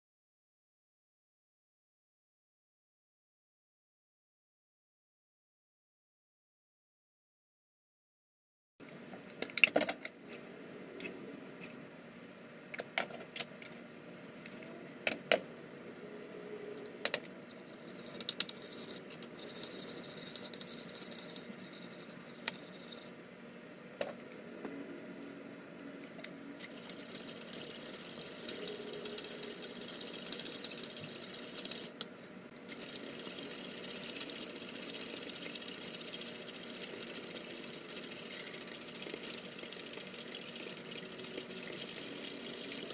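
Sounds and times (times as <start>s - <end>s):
whisk scraping in bowl: 17.4s - 23.1s, 26.7s - 32.0s.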